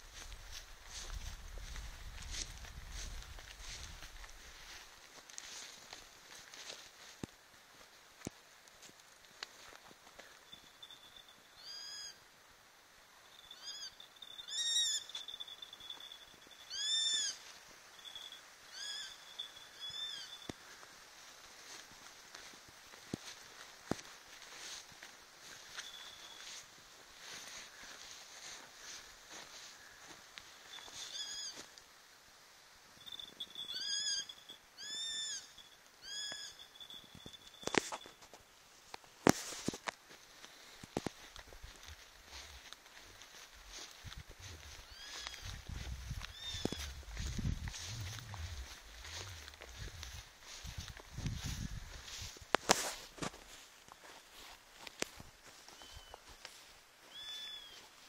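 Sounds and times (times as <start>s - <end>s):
hawk whistled calls: 11.6s - 12.2s, 13.5s - 15.2s, 16.7s - 17.4s, 18.7s - 20.5s, 30.8s - 31.6s, 33.6s - 37.0s, 44.6s - 45.6s, 46.2s - 50.2s, 57.1s - 57.8s
sparrowhawk calling: 16.7s - 17.4s, 44.6s - 50.2s.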